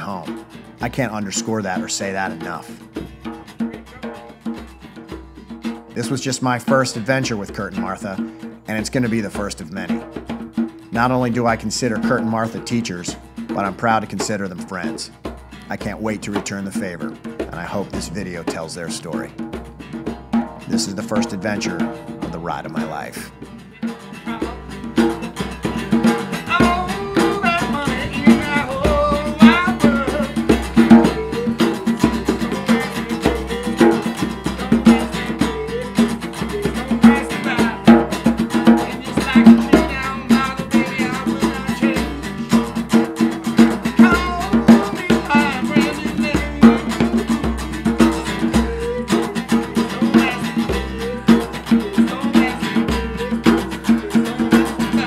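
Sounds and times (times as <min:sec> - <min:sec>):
music with drum beat and guitar: 0:00.0 - 0:55.0.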